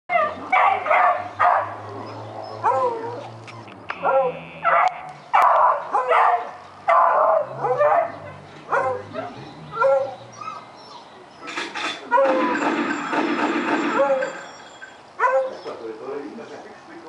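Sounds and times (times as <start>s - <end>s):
dog barking and yelping: 0.1s - 11.1s, 13.8s - 14.6s, 15.2s - 15.8s.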